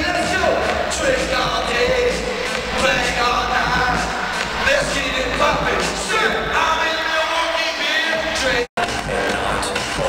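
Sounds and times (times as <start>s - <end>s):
amplified male vocals: 0.0s - 10.0s
loud backing track with deep bass: 0.0s - 10.0s.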